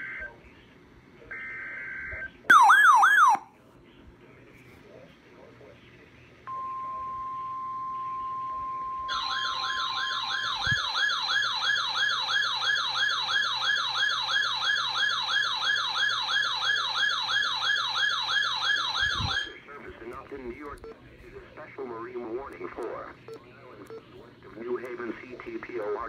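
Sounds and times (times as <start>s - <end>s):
warbling siren alarm: 1.4s - 3.5s, 9.1s - 19.6s
steady alarm tone: 1.9s - 3.4s, 9.1s - 19.6s.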